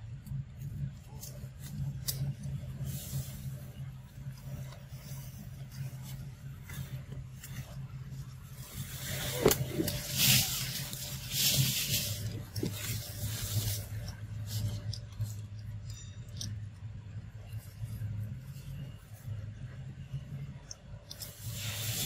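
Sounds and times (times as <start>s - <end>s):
steady low hum: 0.0s - 22.0s
dry leaves rustling: 0.9s - 16.0s.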